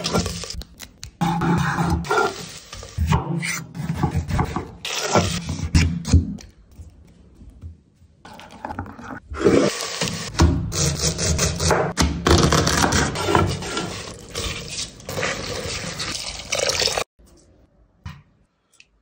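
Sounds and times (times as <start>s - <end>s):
scraping and rustling of ingredients: 13.0s - 16.6s.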